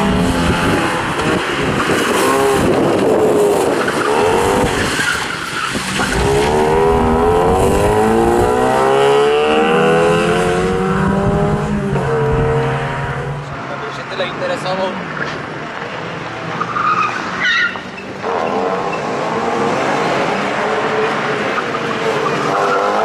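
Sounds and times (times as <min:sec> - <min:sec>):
rally car engine revving: 0:00.0 - 0:14.1, 0:16.5 - 0:23.0
tyres squealing and skidding: 0:03.6 - 0:06.7, 0:16.5 - 0:19.2, 0:21.4 - 0:23.0.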